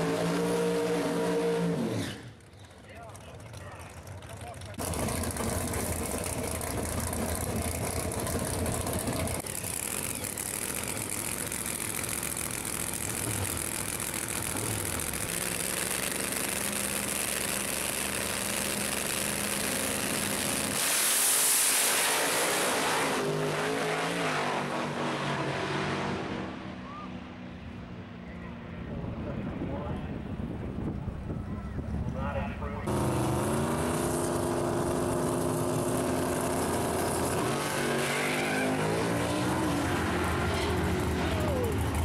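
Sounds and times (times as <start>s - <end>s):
race car engines idling: 2.3s - 20.4s, 40.2s - 42.0s.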